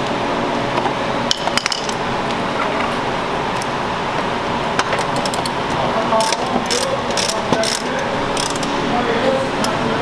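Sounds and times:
steady background hum: 0.0s - 10.0s
hand ratchet clicking: 6.2s - 8.7s.

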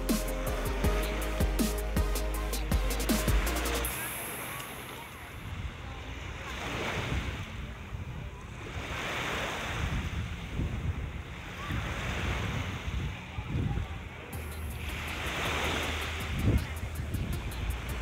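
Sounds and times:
surf washing onto beach: 8.5s - 18.0s
wind buffeting microphone: 9.7s - 18.0s.

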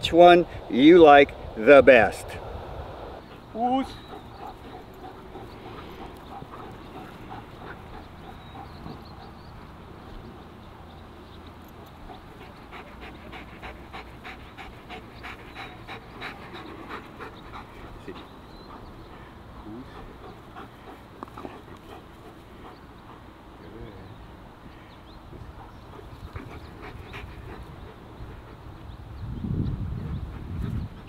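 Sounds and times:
dogs panting: 3.2s - 29.2s, 29.8s - 31.0s.

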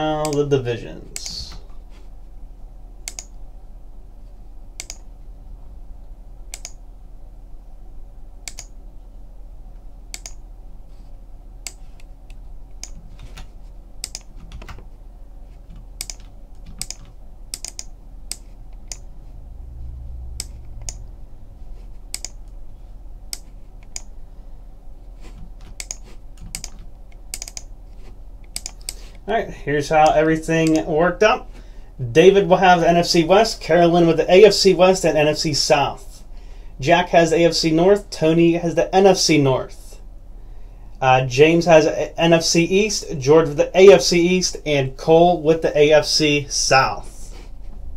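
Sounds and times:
low steady hum: 0.0s - 47.9s
computer mouse and keyboard clicks: 3.1s - 3.4s, 4.8s - 5.1s, 6.5s - 6.8s, 8.4s - 8.8s, 10.1s - 10.4s, 11.6s - 14.9s, 15.6s - 19.1s, 20.4s - 21.0s, 22.1s - 22.6s, 23.3s - 24.1s, 25.2s - 27.7s, 28.4s - 29.0s.

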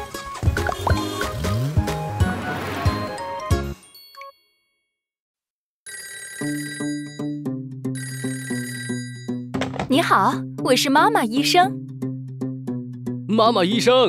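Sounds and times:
music jingle: 0.5s - 4.6s
electronic telephone ringtone: 5.9s - 9.5s.

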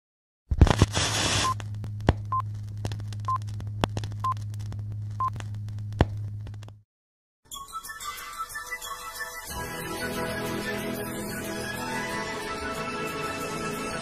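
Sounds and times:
crackles and pops: 0.5s - 6.8s
low hum: 0.7s - 6.8s.

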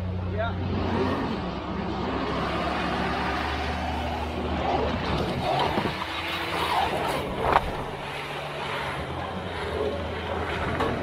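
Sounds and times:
vehicle engine under load: 0.0s - 11.0s.

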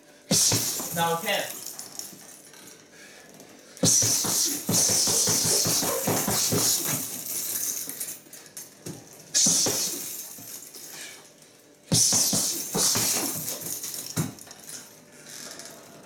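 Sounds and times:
punches hitting heavy bag: 0.3s - 1.6s, 3.8s - 7.5s, 9.4s - 10.3s, 11.9s - 14.4s.

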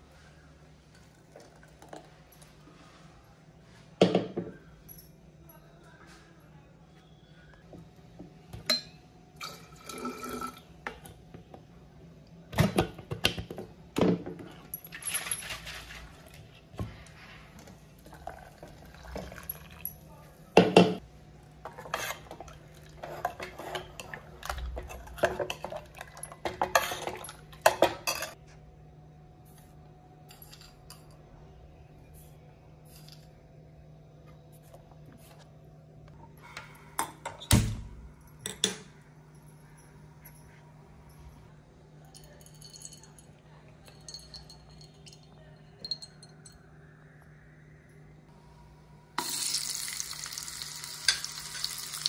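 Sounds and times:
ladle stirring in pot: 21.6s - 27.8s.

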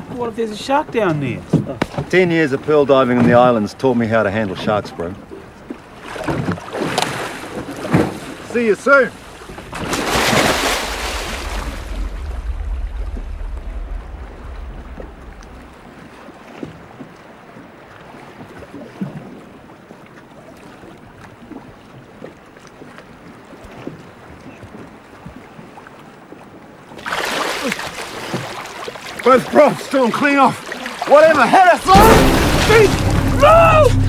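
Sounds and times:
sea water churning and splashing: 0.0s - 34.0s
low rumble: 10.6s - 16.2s, 31.8s - 34.0s.

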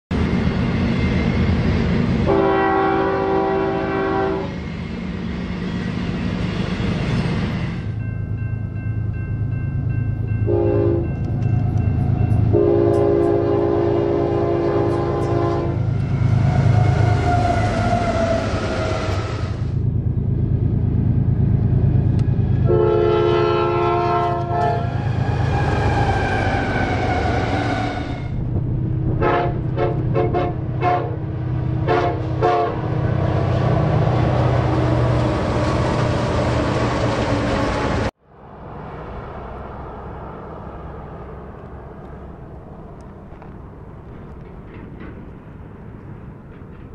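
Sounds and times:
low rumble of passing train: 0.1s - 46.9s
locomotive air horn: 2.2s - 4.6s, 10.5s - 11.2s, 12.5s - 19.6s, 22.6s - 26.1s, 29.1s - 31.2s, 31.8s - 33.0s.

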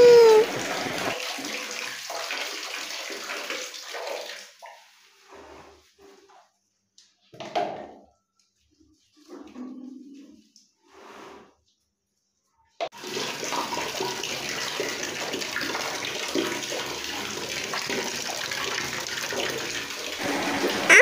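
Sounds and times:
water pouring and splashing: 0.0s - 6.3s, 12.9s - 21.0s.

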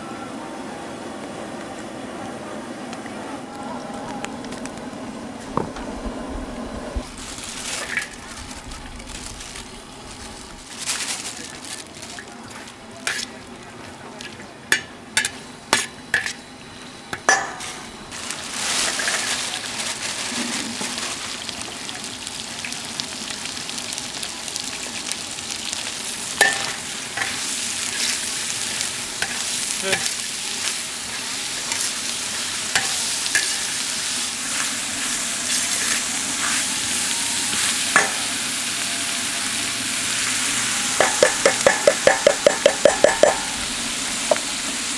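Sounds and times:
ladle scraping wok: 7.0s - 8.4s, 13.0s - 13.4s, 18.5s - 21.2s, 26.4s - 38.5s
pork sizzling in oil: 7.0s - 13.4s, 14.7s - 44.9s
ladle clinking against wok: 41.0s - 43.6s.

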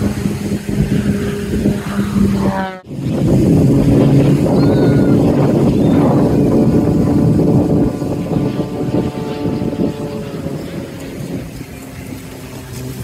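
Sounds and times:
airplane engine drone: 0.0s - 13.0s.

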